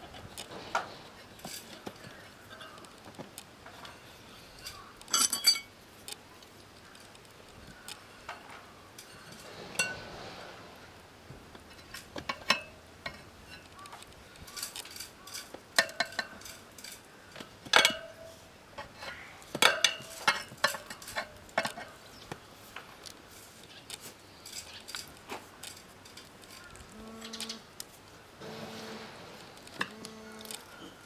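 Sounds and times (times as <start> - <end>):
tyre levers clinking on metal rim: 3.8 - 5.7.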